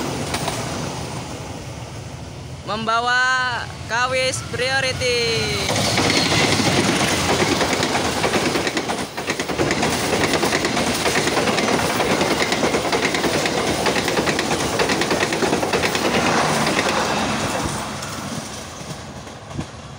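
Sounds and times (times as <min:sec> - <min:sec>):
train wheels clattering over rail joints: 0:00.0 - 0:00.8, 0:05.7 - 0:19.9.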